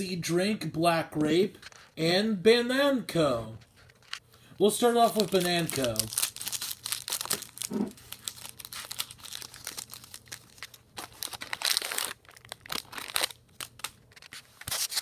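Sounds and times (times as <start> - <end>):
candy wrapper crinkling and tearing: 4.8 - 15.0.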